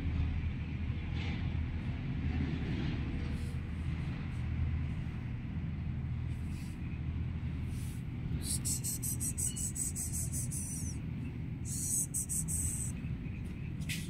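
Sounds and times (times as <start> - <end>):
low background rumble: 3.6 - 13.9
rapid high-pitched ticking: 8.4 - 11.0, 11.7 - 12.9.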